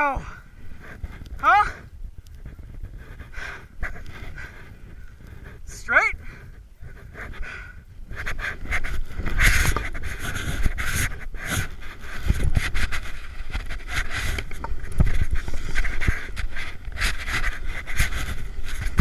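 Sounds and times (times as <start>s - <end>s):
wind rumbling on microphone: 0.0s - 19.0s
person breathing hard: 0.2s - 1.2s, 1.8s - 14.4s.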